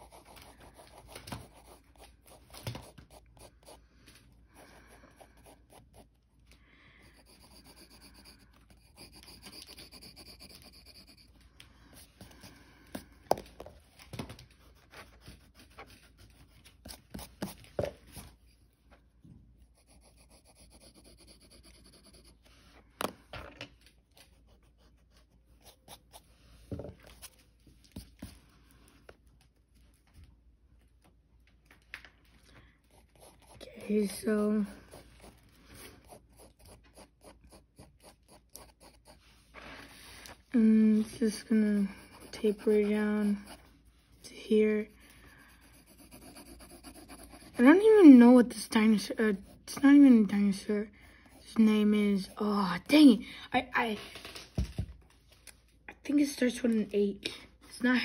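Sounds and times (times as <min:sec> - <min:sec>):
pencil scratching on paper: 0:00.0 - 0:03.8, 0:04.6 - 0:06.1, 0:07.0 - 0:11.4, 0:14.6 - 0:18.6, 0:19.6 - 0:22.5, 0:24.2 - 0:26.3, 0:32.9 - 0:40.4, 0:41.0 - 0:53.1.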